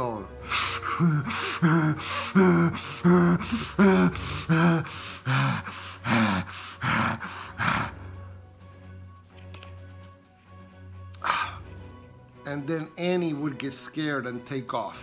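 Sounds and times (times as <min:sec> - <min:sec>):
man breathing heavily through mask: 0:00.3 - 0:08.4.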